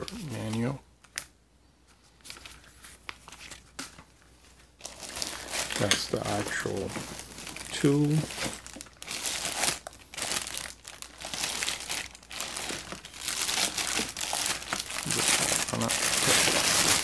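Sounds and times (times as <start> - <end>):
plastic bag crinkling: 4.4 - 17.0.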